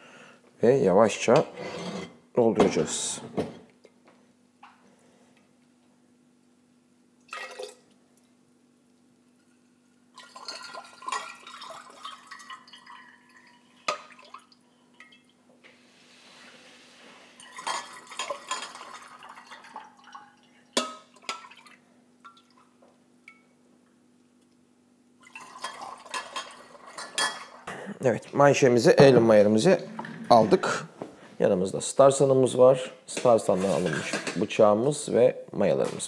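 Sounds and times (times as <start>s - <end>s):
liquid pouring through funnel: 7.2s - 8.0s, 10.1s - 15.4s, 17.4s - 22.7s, 25.2s - 27.0s.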